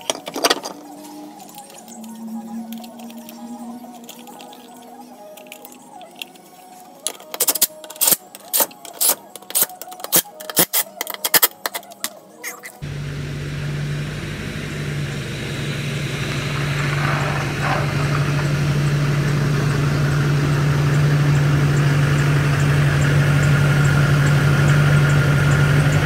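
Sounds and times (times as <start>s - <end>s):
diesel pickup engine humming: 12.7s - 26.0s.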